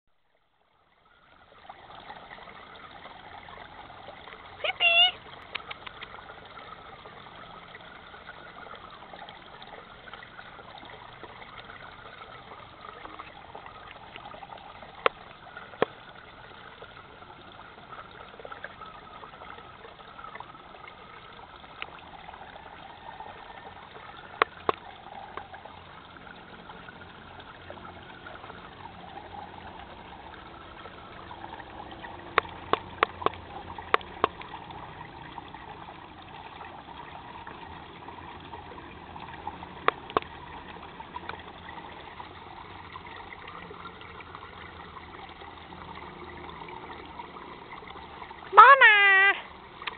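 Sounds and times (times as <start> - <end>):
stream trickling: 0.1 - 49.9.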